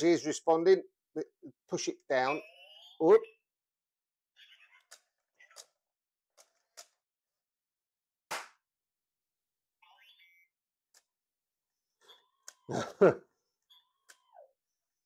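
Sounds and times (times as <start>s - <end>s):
toy electronic chirps and beeps: 2.1s - 3.5s, 4.4s - 5.8s, 9.8s - 10.6s, 13.6s - 14.7s
hand clap: 8.3s - 8.6s.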